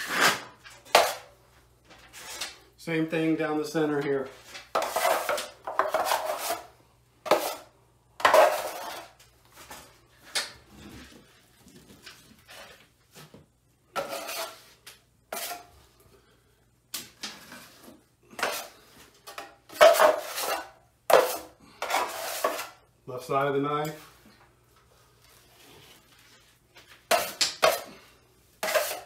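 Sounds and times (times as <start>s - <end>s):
drywall knife scraping: 0.0s - 1.3s, 2.0s - 2.6s, 4.4s - 9.8s, 13.9s - 15.8s, 17.4s - 22.8s, 27.1s - 28.0s, 28.6s - 29.0s.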